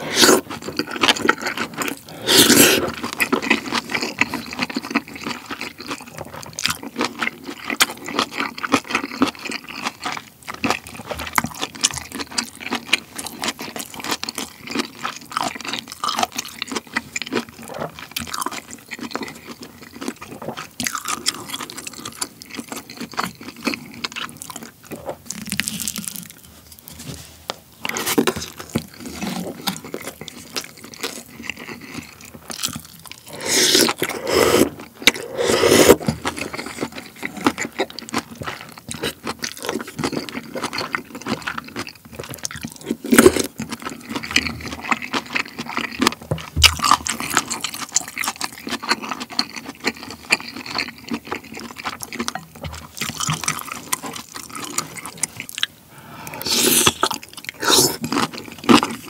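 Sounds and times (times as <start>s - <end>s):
slurping broth: 0.0s - 3.3s, 33.1s - 37.8s, 56.0s - 59.0s
wet chewing and crunching: 0.0s - 27.0s, 27.8s - 59.0s.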